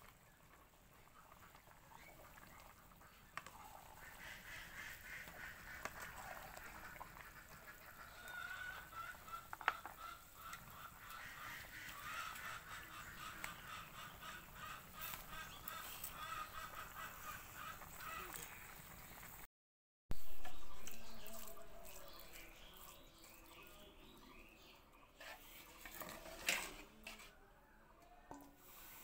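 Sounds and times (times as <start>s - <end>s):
geese and ducks calling: 1.2s - 18.6s.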